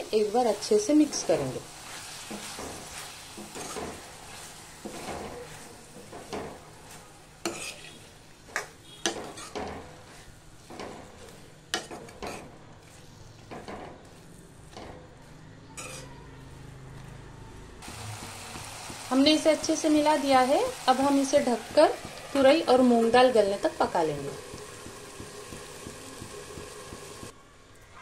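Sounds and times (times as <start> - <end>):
faint sizzle: 0.0 - 17.2, 17.8 - 27.4
steel spoon scraping a pan: 0.6 - 16.3.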